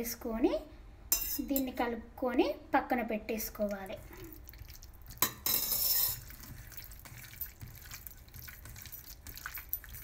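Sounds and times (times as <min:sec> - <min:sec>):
hand squelching food in metal bowl: 0:03.6 - 0:10.0.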